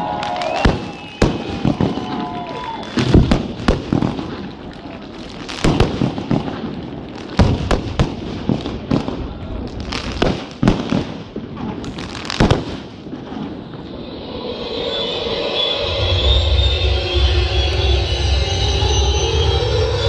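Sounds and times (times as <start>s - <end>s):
firework bangs with echo: 0.0s - 14.0s.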